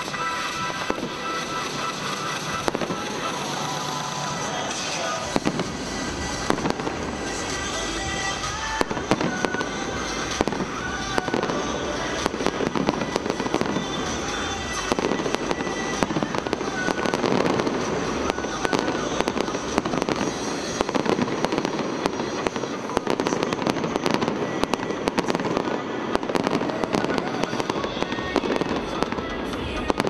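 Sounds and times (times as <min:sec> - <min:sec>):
fireworks bangs and crackling: 0:00.0 - 0:30.0.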